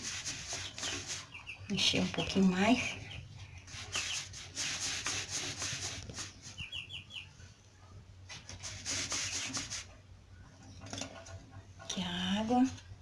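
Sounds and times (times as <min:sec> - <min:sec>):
chick feed rustling in metal feeder: 0:00.0 - 0:02.4
chicks peeping: 0:00.1 - 0:07.6.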